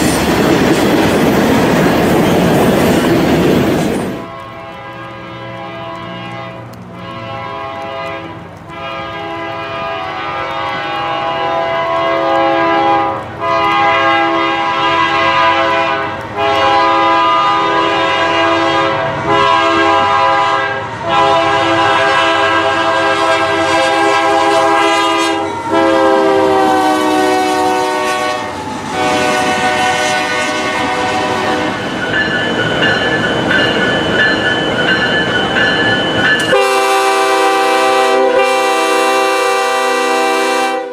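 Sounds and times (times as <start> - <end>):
train horn multi-note tones: 4.2 - 32.0, 36.4 - 40.9.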